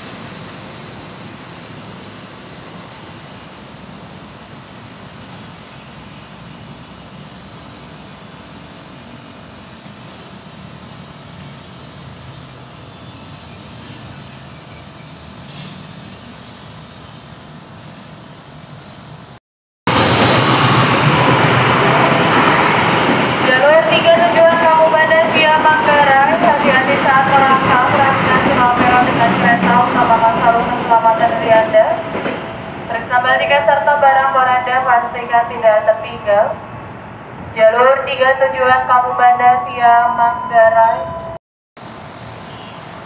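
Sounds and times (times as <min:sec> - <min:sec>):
train wheels rushing on rails: 0:19.9 - 0:32.9.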